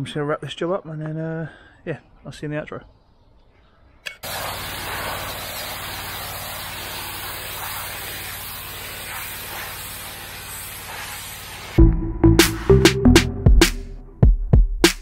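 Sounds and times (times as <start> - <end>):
pressure washer jet hissing: 4.2 - 11.8.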